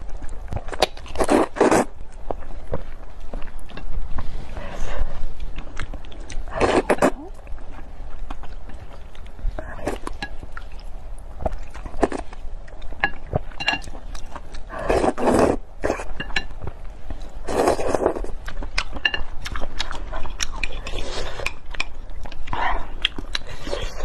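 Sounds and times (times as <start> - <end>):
slurping noodles: 14.7 - 16.0, 17.5 - 18.2
wet chewing and lip smacks: 18.4 - 24.0.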